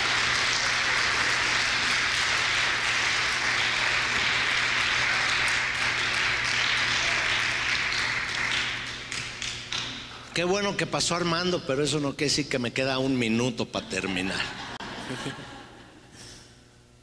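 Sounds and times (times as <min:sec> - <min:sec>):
congregation applauding: 0:00.0 - 0:10.1.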